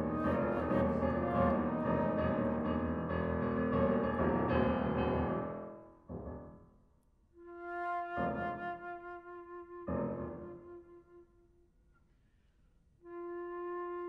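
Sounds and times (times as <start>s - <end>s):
flute: 0.0s - 2.9s, 7.4s - 12.1s, 13.0s - 14.0s
piano: 0.0s - 11.8s.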